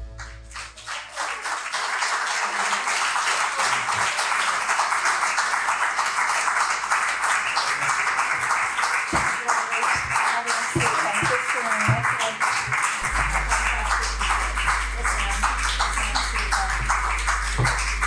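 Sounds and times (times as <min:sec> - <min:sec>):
audience applauding: 0:00.0 - 0:18.0
low marimba notes: 0:13.0 - 0:18.0.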